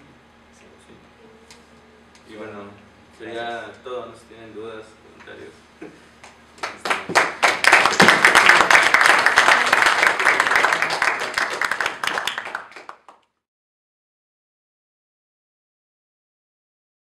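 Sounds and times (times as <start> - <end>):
audience applauding: 6.6 - 13.2.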